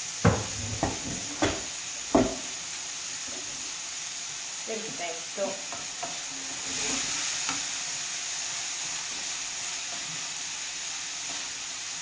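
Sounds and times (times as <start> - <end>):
food sizzling in a frying pan: 0.0 - 12.0
wooden spoon knocking: 0.2 - 2.5.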